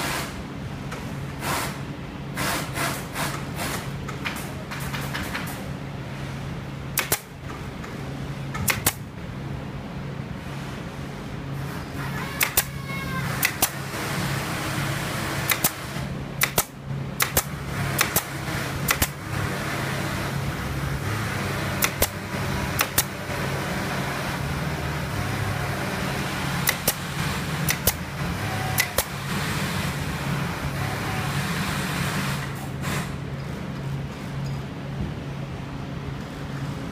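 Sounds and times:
low machinery hum: 0.0s - 36.9s
pneumatic staple gun firing: 7.0s - 7.3s, 8.6s - 9.0s, 12.2s - 12.8s, 13.4s - 13.8s, 15.4s - 19.2s, 21.7s - 22.2s, 22.8s - 23.2s, 26.6s - 28.0s, 28.6s - 29.2s.

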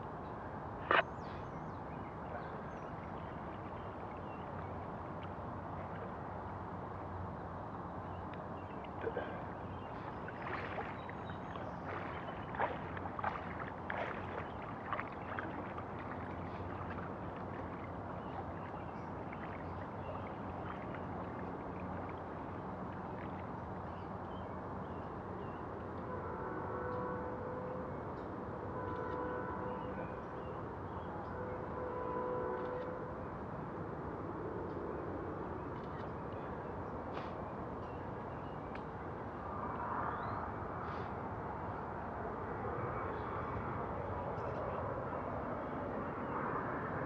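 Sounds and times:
floodwater splashing and lapping: 0.8s - 27.2s.

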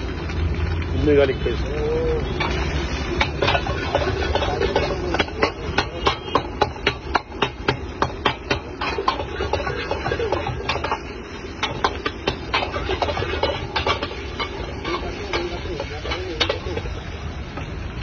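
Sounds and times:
metal ladle scraping wok: 2.2s - 17.7s.

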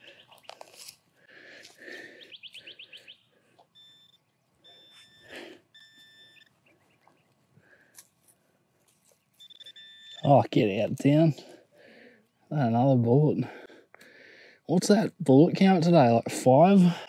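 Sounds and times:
hands scraping through soil: 0.0s - 1.8s
metal detector beeps: 3.6s - 6.7s, 9.3s - 10.8s.

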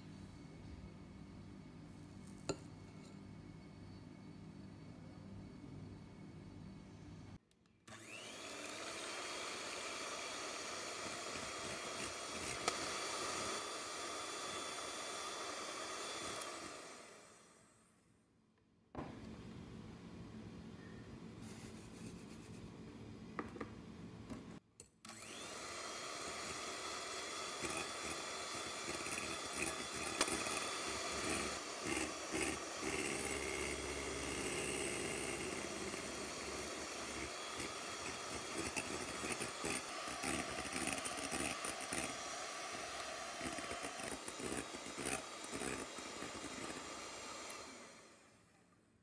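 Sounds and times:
electric hand mixer whine: 7.9s - 17.7s, 25.1s - 48.5s.

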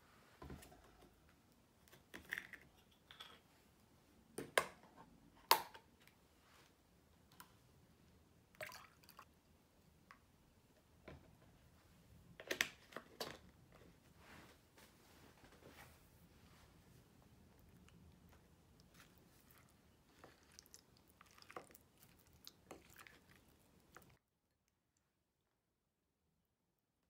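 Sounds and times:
milk pouring into a mug: 8.5s - 9.3s.

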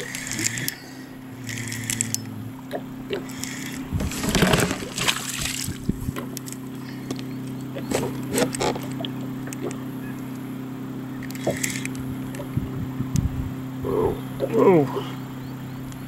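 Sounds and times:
water splashing against kayak hull: 2.7s - 6.7s
gear knocking: 3.2s - 9.8s.

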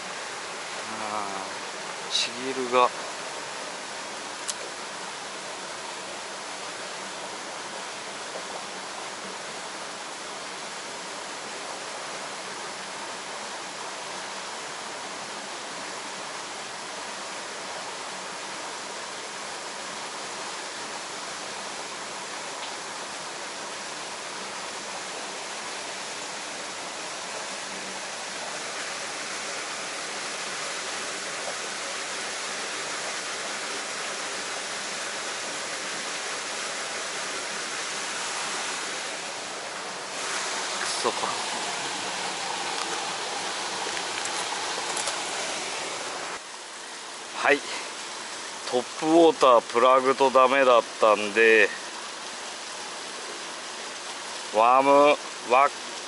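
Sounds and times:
stream water rushing through rocks: 0.0s - 56.0s.

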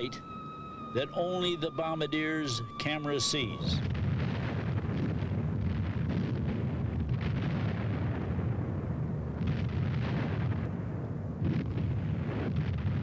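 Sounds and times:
bombs exploding: 2.7s - 13.0s
sharp explosion cracks: 3.6s - 13.0s.

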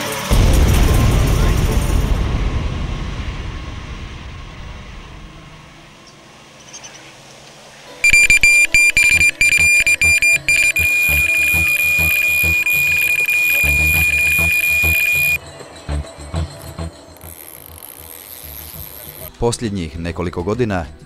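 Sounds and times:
bite alarm beeping: 8.0s - 15.4s.

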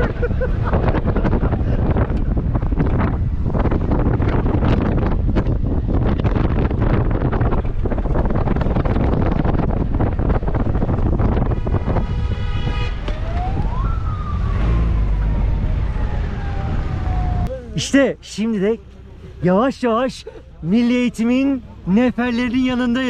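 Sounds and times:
wind buffeting microphone: 0.0s - 17.6s
vehicle rumble: 0.0s - 23.0s
horn-like tone: 11.6s - 13.1s
siren-like wail: 12.9s - 17.7s.

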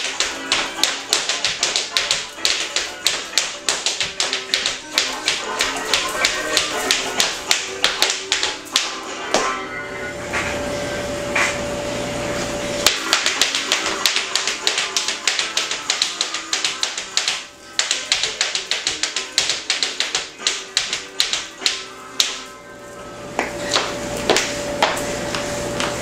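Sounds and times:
tap shoes clicking on floor: 0.0s - 9.5s, 12.8s - 22.5s, 23.4s - 26.0s
ragtime music: 0.0s - 10.1s, 12.8s - 22.7s.

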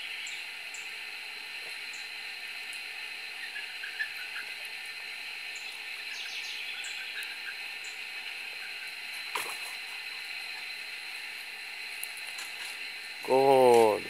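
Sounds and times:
steady high hiss: 0.0s - 14.0s
ducklings peeping: 1.6s - 10.9s.

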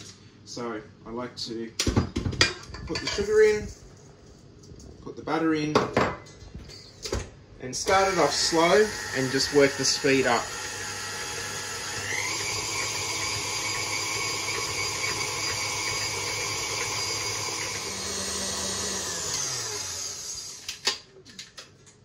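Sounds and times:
stand mixer motor whine: 7.9s - 20.6s.

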